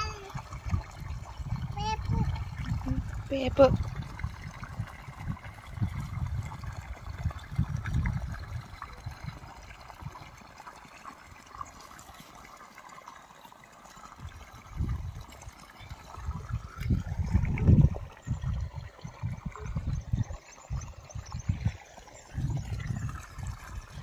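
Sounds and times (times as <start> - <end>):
water pouring into puddle: 0.0 - 24.0.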